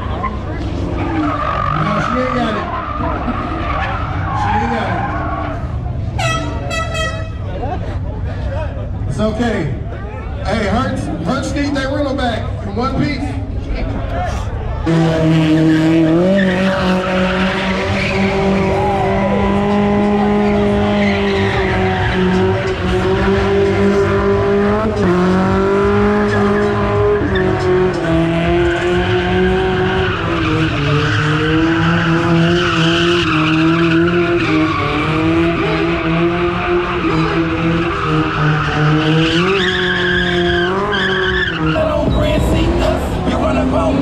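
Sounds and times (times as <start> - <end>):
truck engine revving high: 14.8 - 44.0
tyres squealing: 29.7 - 44.0.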